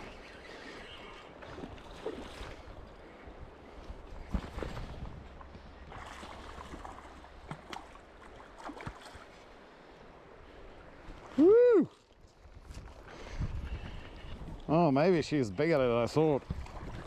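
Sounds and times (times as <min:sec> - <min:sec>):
loud whoop: 0:11.4 - 0:12.0.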